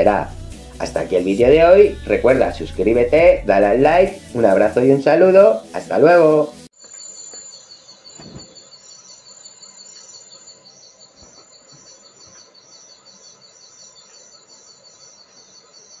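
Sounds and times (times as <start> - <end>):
crickets trilling: 6.8 - 16.0
high insect chirp: 6.8 - 16.0.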